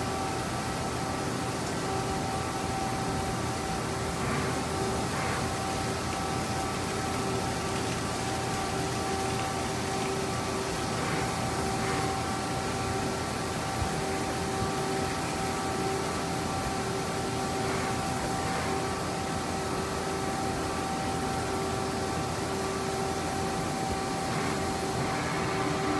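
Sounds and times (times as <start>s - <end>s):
low machine hum: 0.0s - 25.9s
coolant and chips spraying: 4.1s - 16.6s
milling spindle whine: 20.3s - 25.9s.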